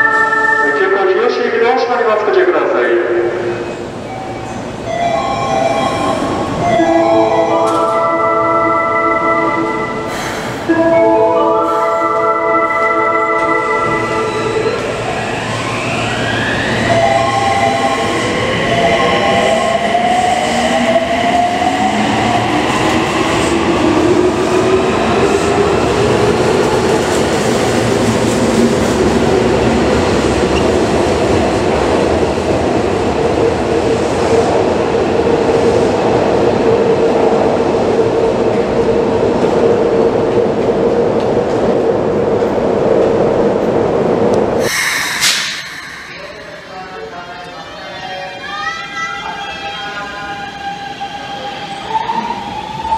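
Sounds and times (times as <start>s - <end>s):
train wheels running on rails: 11.6s - 47.7s.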